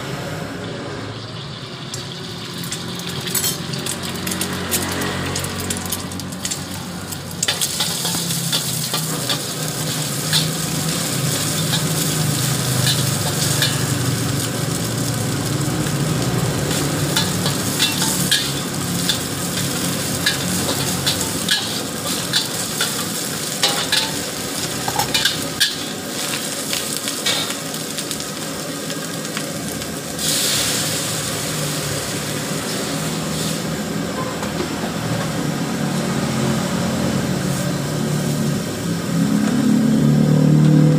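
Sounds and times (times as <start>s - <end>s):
food sizzling in a wok: 1.1s - 40.9s
metal ladle scraping a wok: 16.8s - 26.4s.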